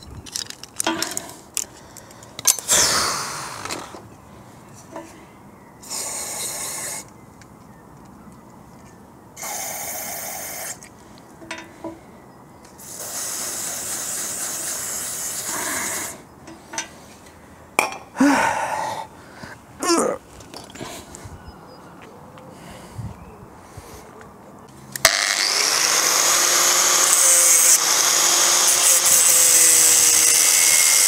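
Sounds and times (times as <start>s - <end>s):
person grunting: 18.2s - 19.1s, 19.8s - 20.2s.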